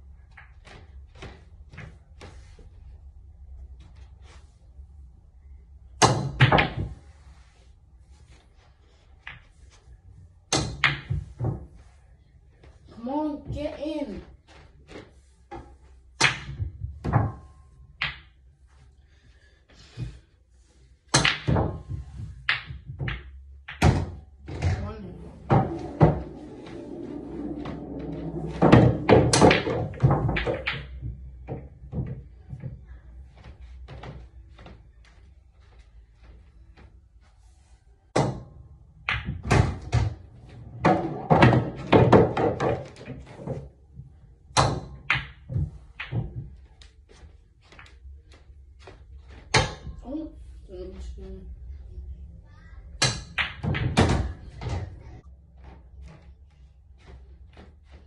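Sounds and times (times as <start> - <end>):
pool balls clacking: 21.2 - 32.7, 38.2 - 43.7
cue striking ball: 25.4 - 30.9.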